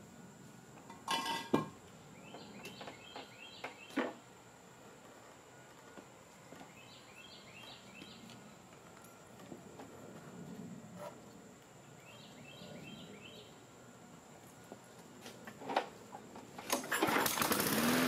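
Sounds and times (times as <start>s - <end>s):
lawn mower clattering on concrete: 15.6s - 18.0s.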